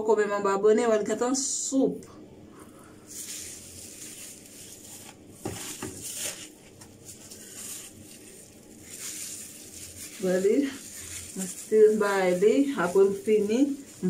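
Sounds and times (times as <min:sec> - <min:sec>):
hair rustling and squishing: 0:03.0 - 0:14.0
sharp crackle: 0:03.1 - 0:14.0.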